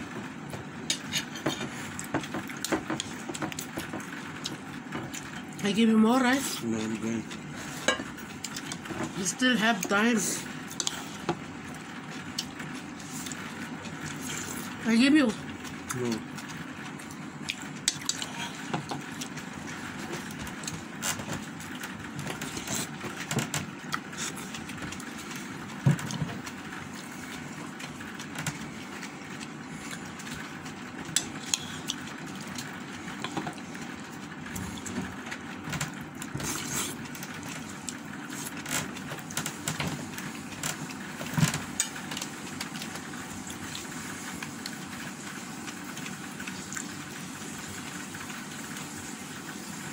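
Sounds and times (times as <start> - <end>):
chewing and mouth noises: 8.2 - 9.0, 15.6 - 39.8, 41.6 - 47.0.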